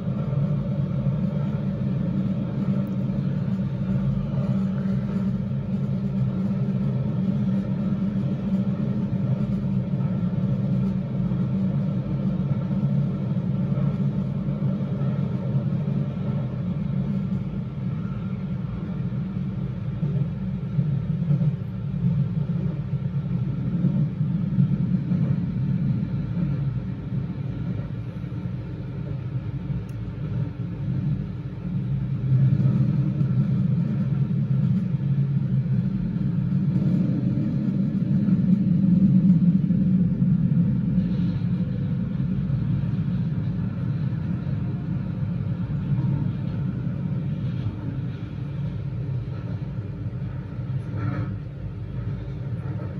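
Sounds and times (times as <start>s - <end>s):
train wheels rumbling in tunnel: 0.0s - 52.9s.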